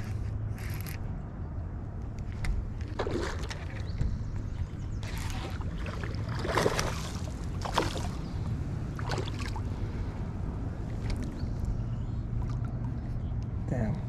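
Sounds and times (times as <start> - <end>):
fish splashing in water: 2.8 - 4.1, 5.0 - 9.8.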